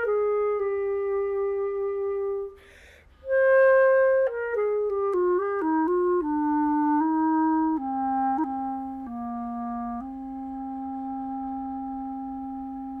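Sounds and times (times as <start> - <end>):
solo clarinet playing: 0.0 - 13.0.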